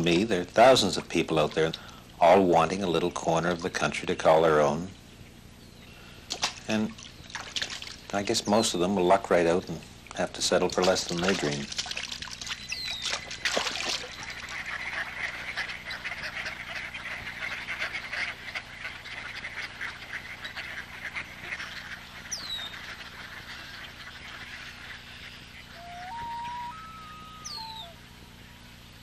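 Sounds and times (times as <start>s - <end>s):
duck splashing in water: 6.3s - 8.1s, 10.6s - 16.4s
long wailing bird call: 24.9s - 28.6s.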